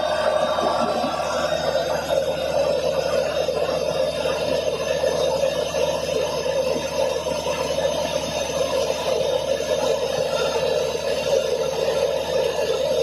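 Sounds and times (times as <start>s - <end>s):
drilling rig engine and hydraulics: 0.0s - 13.0s.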